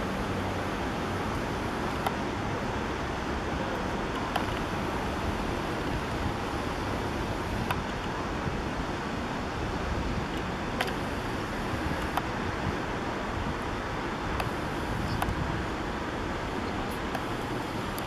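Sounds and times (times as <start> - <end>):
outdoor background noise: 0.0 - 18.0
faint clicks: 14.4 - 15.4.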